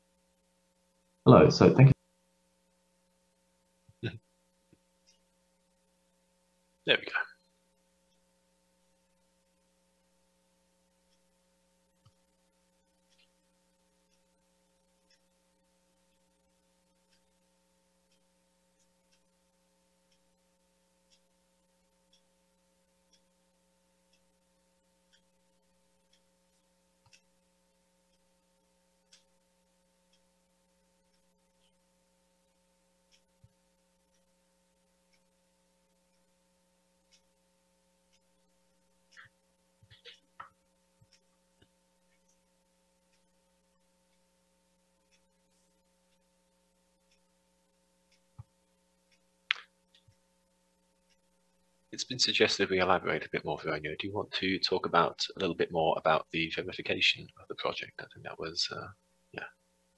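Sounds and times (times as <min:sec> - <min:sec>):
faint electrical hum: 0:00.0 - 0:59.9
faint ticks: 0:02.4 - 0:52.0.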